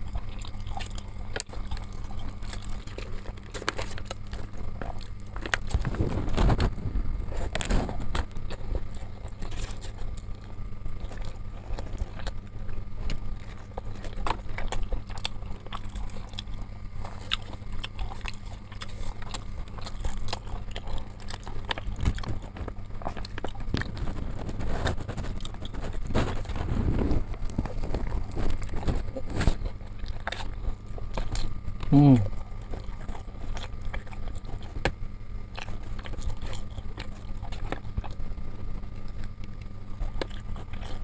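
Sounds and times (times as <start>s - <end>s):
chewing and mouth noises: 0.0s - 41.0s
steady low hum: 0.0s - 41.0s.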